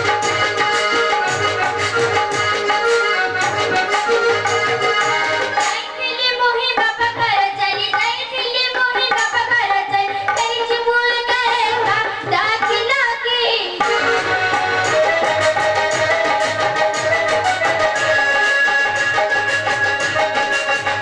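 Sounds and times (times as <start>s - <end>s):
harmonium reed drone: 0.0s - 7.6s, 13.7s - 21.0s.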